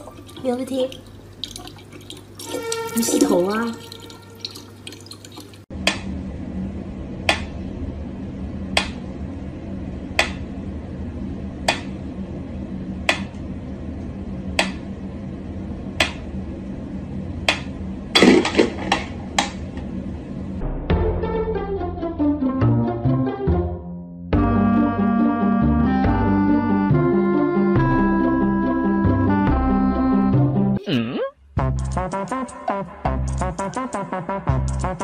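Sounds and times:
steady low hum: 5.7 - 20.9.

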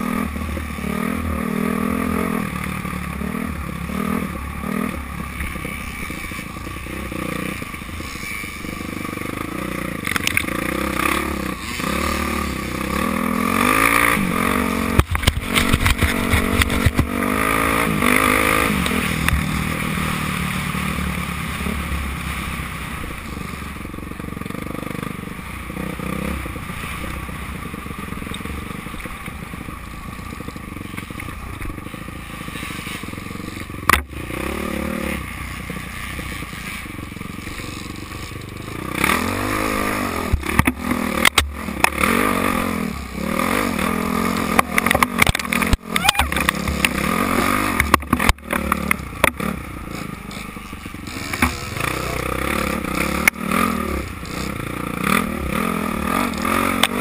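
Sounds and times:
dirt bike engine revving: 0.0 - 57.0
sharp knocks and clatter: 14.9 - 17.2.

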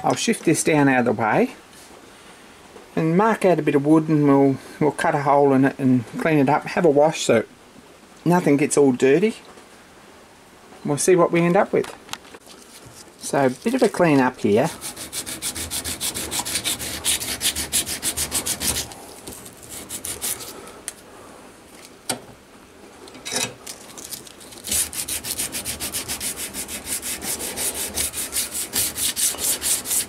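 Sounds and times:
file scraping metal edge: 14.7 - 19.0, 19.6 - 20.5, 24.6 - 30.0.

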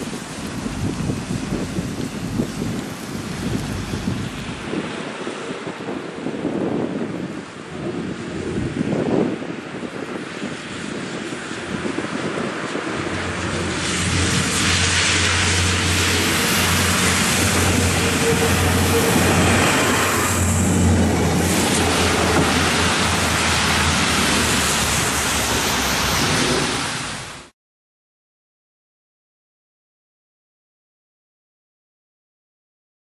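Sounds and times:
railcar engine drone: 0.0 - 6.3, 11.2 - 27.5
wheels rushing on rail: 0.0 - 27.5.

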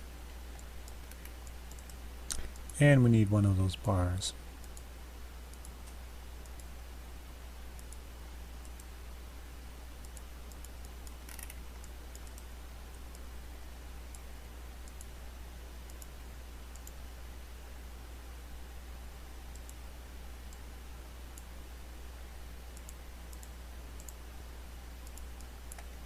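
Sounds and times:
steady low hum: 0.0 - 26.0
computer mouse clicks: 0.6 - 2.8, 4.6 - 4.9, 5.5 - 6.7, 7.7 - 8.9, 10.0 - 13.3, 14.1 - 15.2, 15.9 - 17.0, 19.5 - 19.8, 21.3 - 21.5, 22.7 - 24.2, 25.0 - 26.0.

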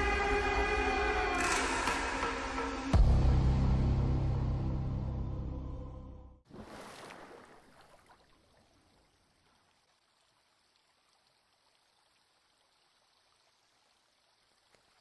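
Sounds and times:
water lapping: 6.5 - 12.2
water splashing: 6.5 - 15.0.

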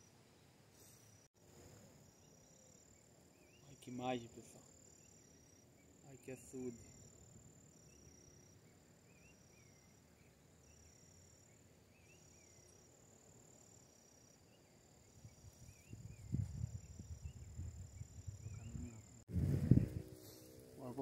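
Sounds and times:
insects chirping: 0.0 - 21.0
wind buffeting microphone: 15.2 - 20.3.

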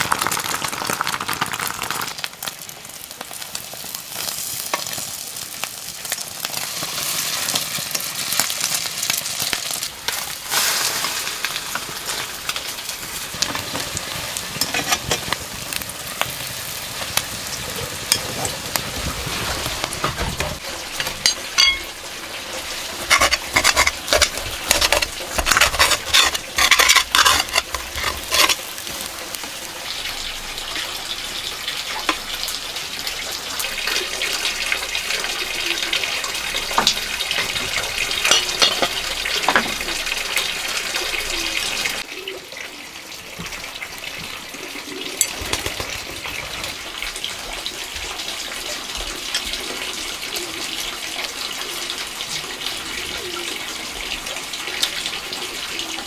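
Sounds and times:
omelette sizzling in oil: 0.0 - 42.3
metal tongs scraping in a wok: 14.6 - 15.4, 20.1 - 21.9, 23.0 - 29.0, 36.8 - 39.6.

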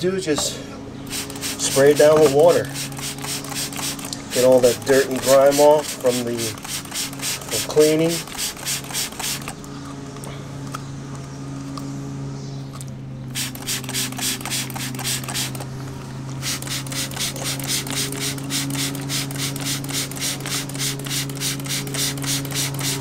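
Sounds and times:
steady low hum: 0.0 - 23.0
spray bottle squirting: 1.1 - 9.6, 13.3 - 15.7, 16.3 - 23.0.

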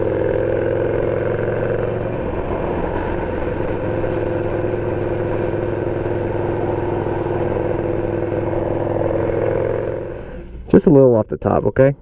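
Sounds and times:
motorcycle engine cruising: 0.0 - 10.8.

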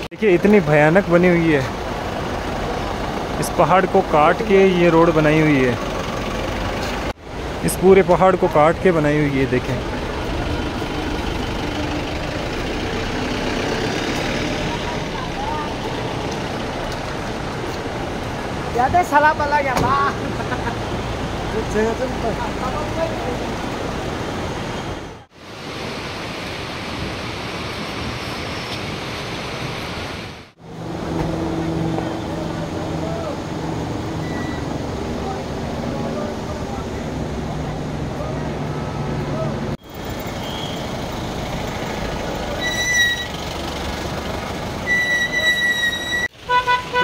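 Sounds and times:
fast mountain river rushing: 0.0 - 42.6
road traffic: 0.0 - 47.0
high steady tone: 44.8 - 46.4.

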